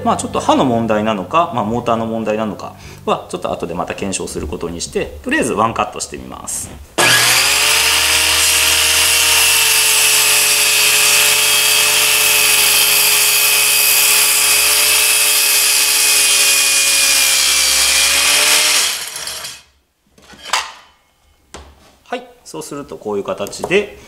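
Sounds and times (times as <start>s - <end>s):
circular saw cutting wood: 7.0s - 19.7s.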